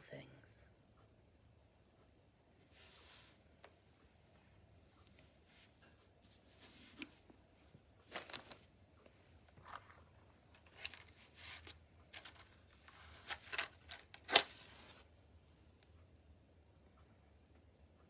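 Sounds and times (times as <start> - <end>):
small rustles and clicks: 5.0 - 15.1.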